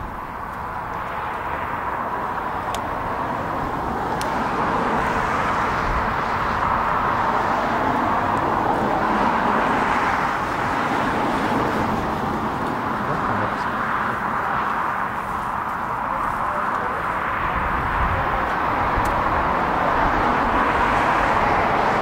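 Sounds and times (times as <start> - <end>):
jet engines roaring: 0.0 - 22.0
road traffic noise: 0.0 - 22.0.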